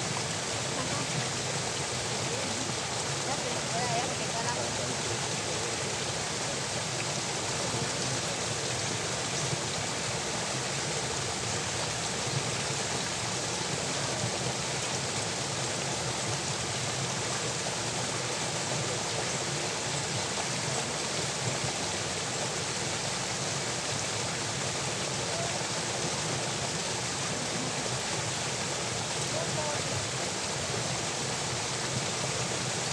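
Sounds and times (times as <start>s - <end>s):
water rushing from culvert: 0.0s - 32.9s.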